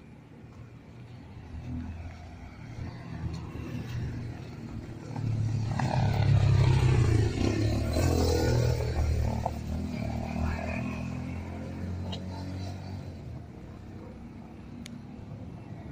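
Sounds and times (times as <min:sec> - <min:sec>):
motorcycle engine passing by: 0:02.6 - 0:13.4.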